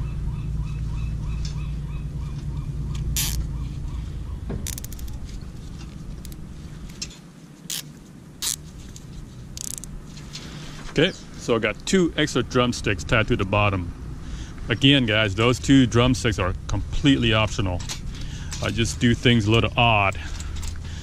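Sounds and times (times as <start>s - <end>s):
low steady rumble: 0.0s - 21.0s
zip ties ratcheting tight: 3.2s - 3.4s, 4.6s - 5.2s, 7.7s - 8.7s, 9.6s - 9.9s.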